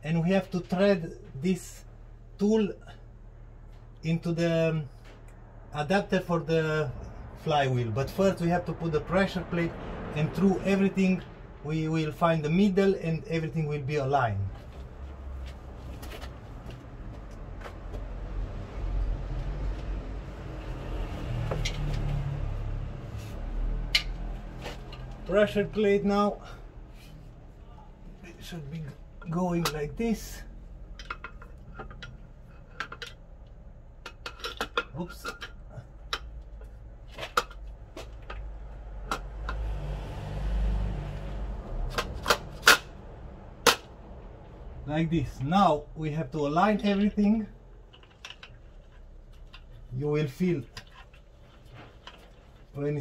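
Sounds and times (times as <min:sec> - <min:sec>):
motor vehicle rumble: 0:00.0 - 0:53.0
metal clicks and knocks: 0:30.8 - 0:39.6, 0:47.7 - 0:49.8.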